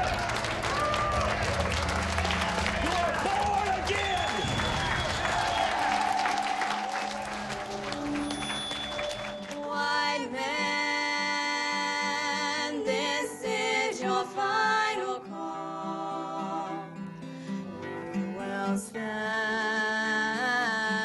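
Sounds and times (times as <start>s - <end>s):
applause: 0.0s - 9.7s
women singing together: 9.5s - 17.0s, 18.3s - 21.0s.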